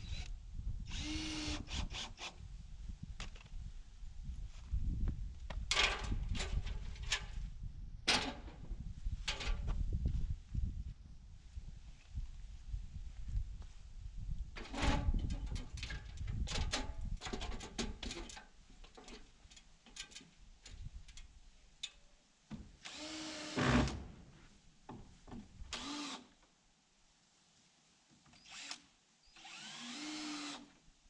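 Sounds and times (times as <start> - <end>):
power drill spinning up: 0.9 - 2.2, 25.8 - 26.2, 28.5 - 30.7
aluminium ladder knocks and rattles: 5.6 - 7.3, 14.6 - 21.2.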